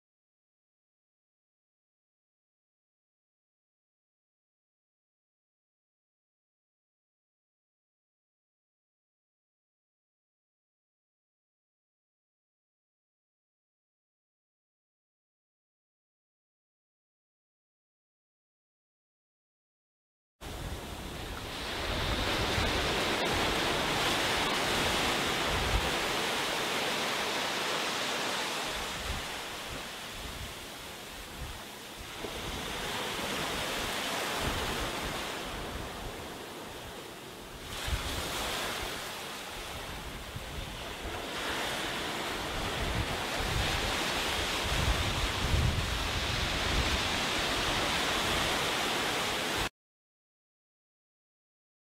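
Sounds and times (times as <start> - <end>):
small waves breaking on sand: 20.4 - 49.7
wind buffeting microphone: 20.5 - 49.6.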